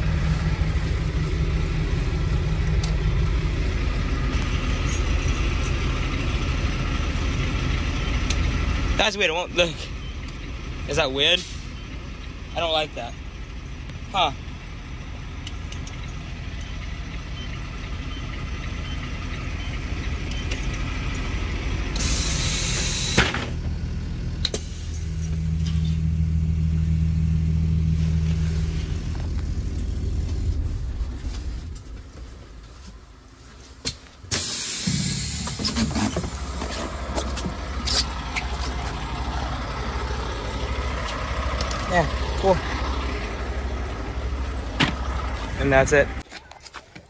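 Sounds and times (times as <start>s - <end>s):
bus engine idling: 0.0s - 47.0s
air brake hiss and click: 22.0s - 23.5s, 34.3s - 36.1s.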